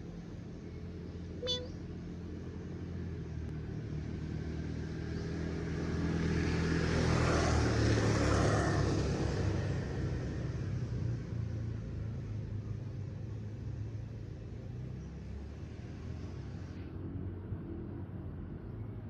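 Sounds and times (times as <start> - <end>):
vehicle engine humming: 0.0 - 4.4.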